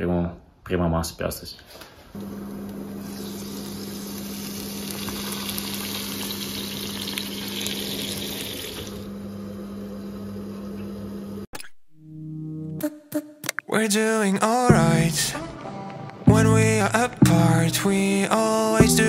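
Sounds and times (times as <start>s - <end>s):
eggs sizzling in a pan: 3.0s - 9.1s.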